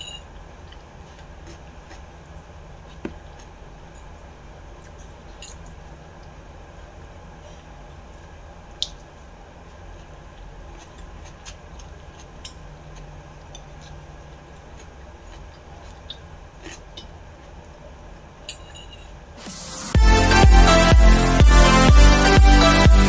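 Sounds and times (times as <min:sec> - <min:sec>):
steady low hum: 0:00.0 - 0:23.0
wet chewing: 0:00.6 - 0:03.6, 0:09.9 - 0:17.1.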